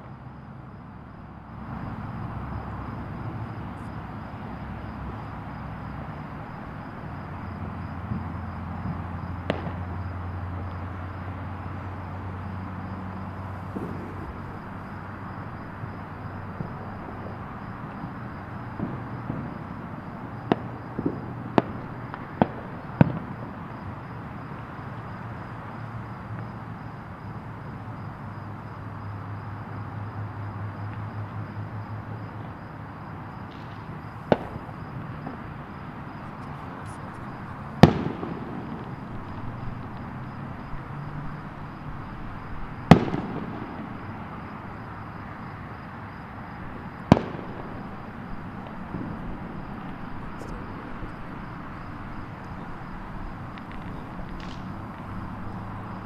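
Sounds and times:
background rumble: 1.0s - 23.6s
distant fireworks bangs: 1.3s - 25.6s, 31.9s - 56.0s.

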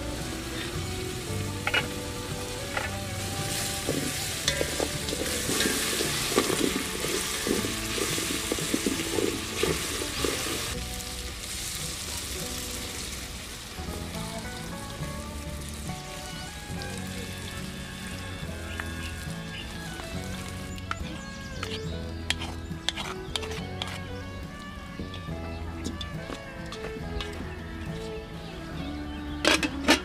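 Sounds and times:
food sizzling in a metal pot: 0.0s - 28.0s
wooden spoon scraping a pot: 0.3s - 10.8s, 18.4s - 24.2s.

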